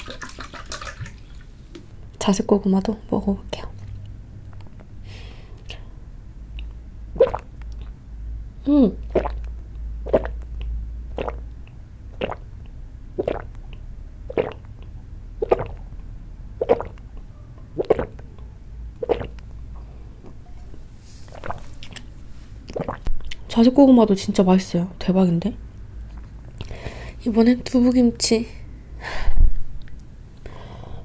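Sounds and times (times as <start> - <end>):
person gulping a drink: 0.0 - 1.5, 6.6 - 8.0, 9.0 - 16.0, 16.6 - 18.4, 19.0 - 19.4, 21.3 - 23.4.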